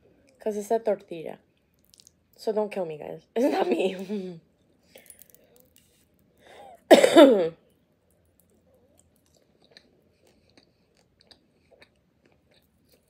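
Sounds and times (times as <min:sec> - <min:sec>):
quiet chewing: 0:01.5 - 0:02.3, 0:08.0 - 0:13.0.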